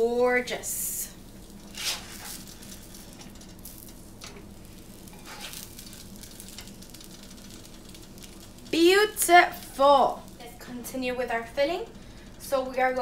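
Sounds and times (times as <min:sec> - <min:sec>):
food sizzling on griddle: 0:00.1 - 0:13.0
spatula on pan: 0:00.7 - 0:08.8.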